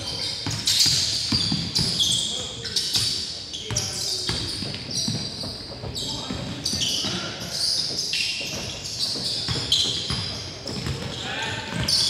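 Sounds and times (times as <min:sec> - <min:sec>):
sneakers squeaking: 0:00.0 - 0:12.0
basketball bouncing: 0:00.4 - 0:02.0, 0:08.4 - 0:12.0.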